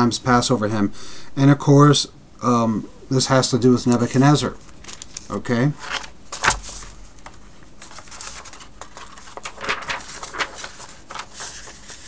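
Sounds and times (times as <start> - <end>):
rustling at a desk: 3.8 - 12.0.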